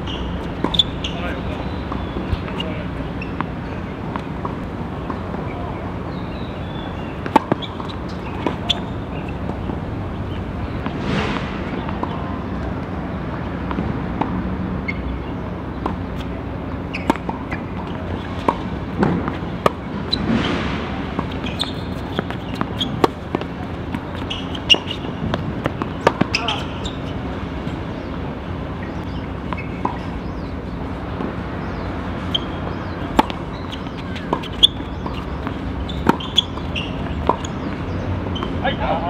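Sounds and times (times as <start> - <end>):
tennis balls struck with rackets: 0.1 - 38.6
balls bouncing on court: 21.1 - 28.1, 31.1 - 39.0.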